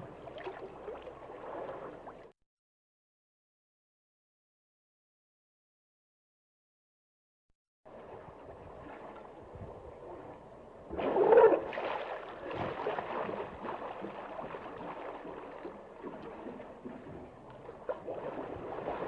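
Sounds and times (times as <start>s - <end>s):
water sloshing and gurgling: 0.0s - 2.4s, 7.9s - 19.0s.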